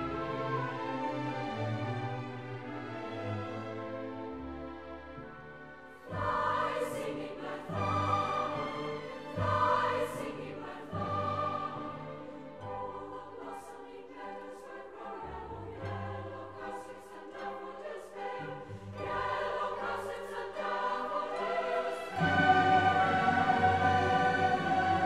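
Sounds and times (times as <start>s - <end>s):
orchestral accompaniment: 0.0s - 25.0s
women's choir singing: 6.0s - 25.0s.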